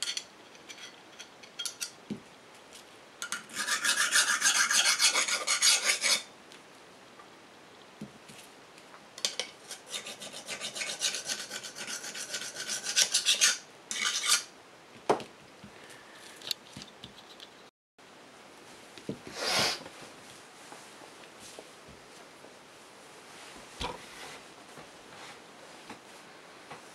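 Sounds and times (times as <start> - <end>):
abrasive stick rasping on knife blade: 3.2 - 6.3
knife set down on table: 23.8 - 24.0.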